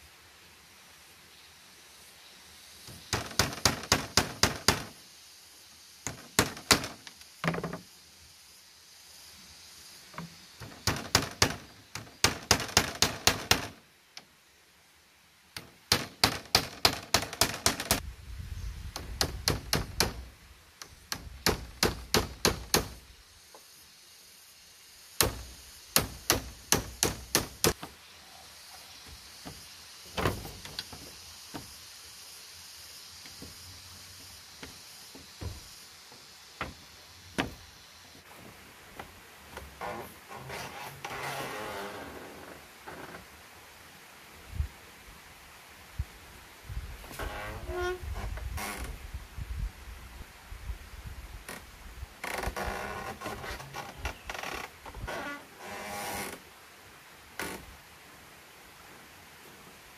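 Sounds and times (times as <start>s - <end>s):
hammer knocking on bamboo: 3.1s - 5.0s, 6.1s - 7.8s, 10.6s - 13.8s, 15.6s - 18.0s, 19.0s - 20.3s, 21.1s - 23.0s, 25.2s - 27.8s.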